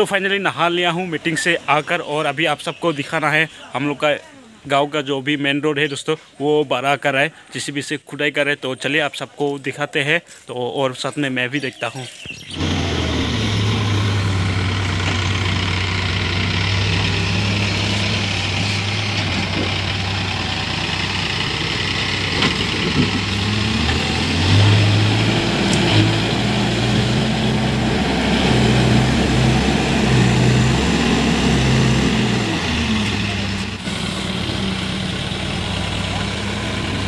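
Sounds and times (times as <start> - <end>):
diesel engine running: 12.4 - 37.0.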